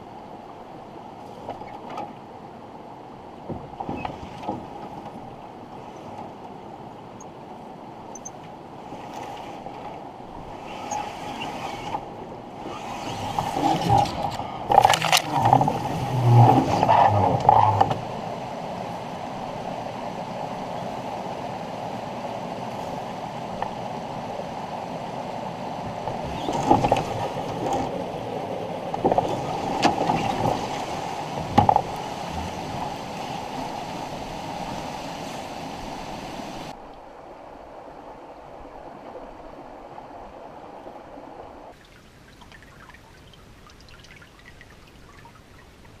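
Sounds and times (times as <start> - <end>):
steady rushing noise: 8.6 - 41.8
branches scraping against a canoe: 8.8 - 18.1, 29.0 - 33.5
meltwater trickling: 41.7 - 46.0.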